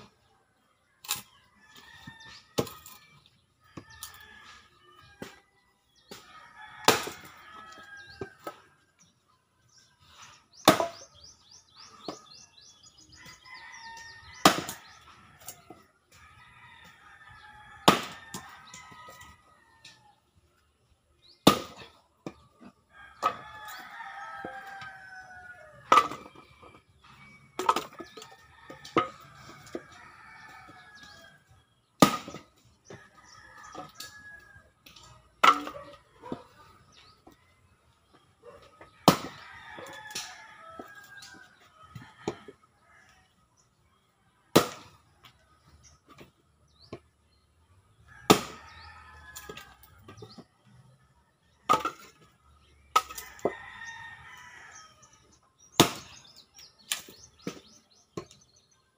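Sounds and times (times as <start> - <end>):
axe chopping firewood: 6.1 - 7.3, 10.6 - 11.2, 14.4 - 15.0, 17.8 - 18.5, 21.4 - 22.4, 31.9 - 34.0, 34.8 - 36.5, 38.8 - 40.3, 44.5 - 45.1, 48.2 - 48.8, 55.7 - 58.4.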